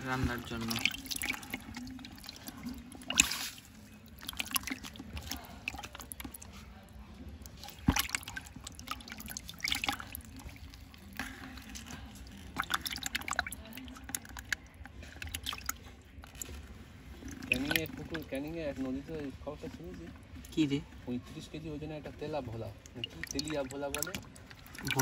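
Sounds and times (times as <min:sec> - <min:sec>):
fish splashing in bucket: 0:00.0 - 0:06.6, 0:07.4 - 0:18.3, 0:22.8 - 0:25.0.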